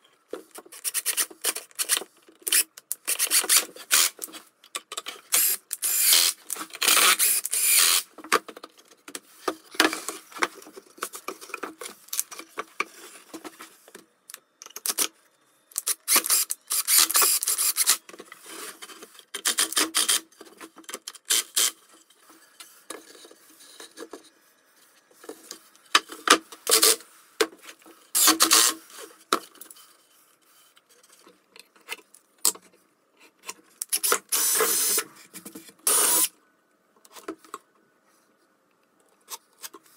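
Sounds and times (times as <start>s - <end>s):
cordless drill driving screws: 2.5s - 4.1s, 5.4s - 8.0s, 15.8s - 18.0s, 33.9s - 35.0s, 35.9s - 36.3s.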